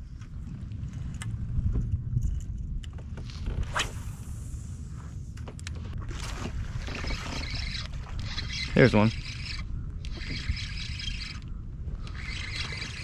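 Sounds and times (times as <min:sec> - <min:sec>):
low rumble: 0:00.0 - 0:06.8
fishing reel clicking: 0:07.4 - 0:13.0.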